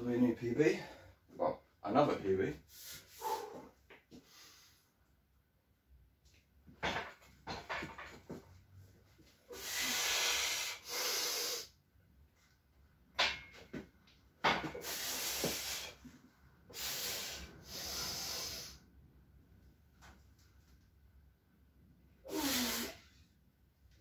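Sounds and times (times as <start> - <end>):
forceful hissing breaths: 2.7 - 4.9, 9.5 - 11.8, 14.8 - 16.1, 16.7 - 18.9, 22.3 - 23.2.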